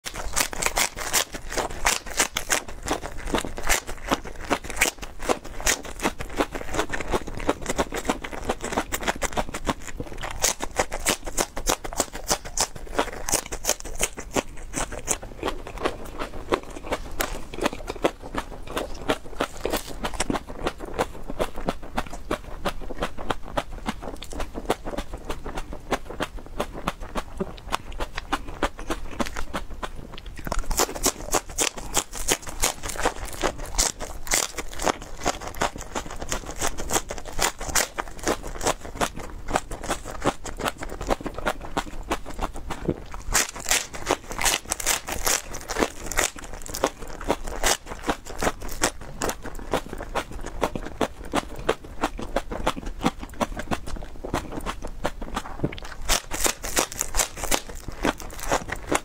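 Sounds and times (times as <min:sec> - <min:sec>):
chewing crunchy green onions: 0:00.0 - 0:59.0.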